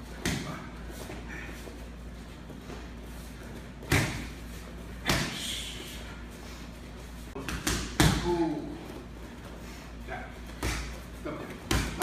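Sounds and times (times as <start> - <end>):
punches hitting focus mitts: 3.8 - 4.4, 5.0 - 5.4, 7.4 - 8.5, 10.5 - 12.0.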